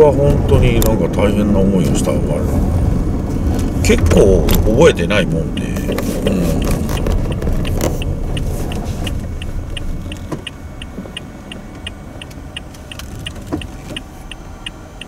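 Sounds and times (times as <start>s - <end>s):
car road noise rumble: 0.0s - 15.0s
turn signal ticking: 3.1s - 15.0s.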